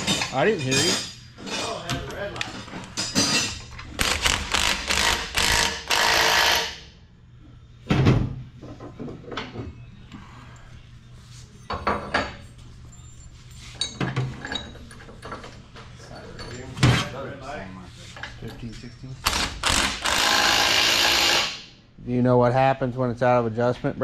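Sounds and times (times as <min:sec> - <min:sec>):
power tool rattling: 0:19.2 - 0:21.6.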